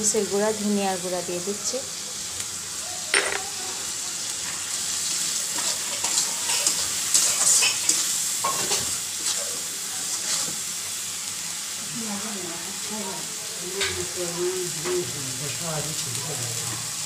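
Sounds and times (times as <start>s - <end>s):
onions sizzling in hot oil: 0.0s - 17.0s
metal spatula scraping pan: 5.6s - 8.9s.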